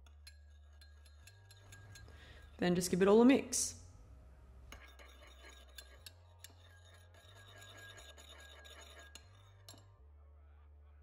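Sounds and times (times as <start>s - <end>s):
spoon clicking against bowl: 0.0s - 2.2s
spoon stirring in ceramic bowl: 0.0s - 3.0s, 4.7s - 9.9s.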